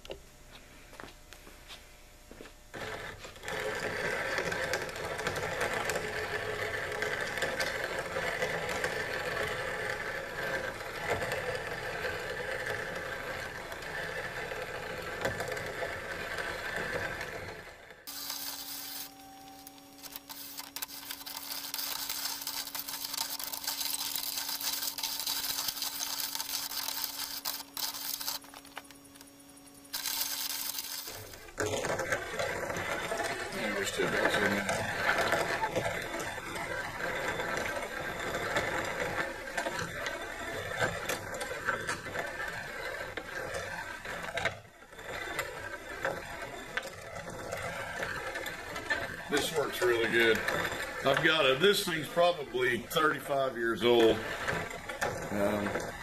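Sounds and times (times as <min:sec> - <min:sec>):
hum with high hiss: 0:00.0 - 0:02.8, 0:18.1 - 0:35.7
grinder grinding gritty material: 0:02.3 - 0:56.0.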